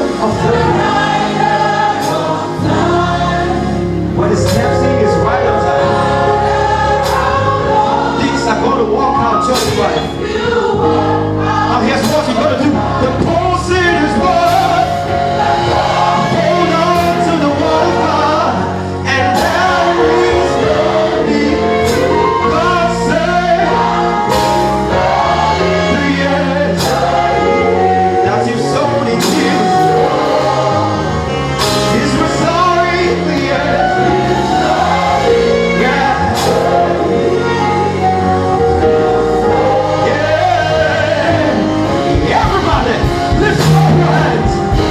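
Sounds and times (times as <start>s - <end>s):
accompaniment with held notes: 0.0s - 44.9s
voices singing along: 0.0s - 44.9s
man singing into a microphone: 16.0s - 24.0s, 25.6s - 30.8s, 31.8s - 34.2s, 39.5s - 44.9s.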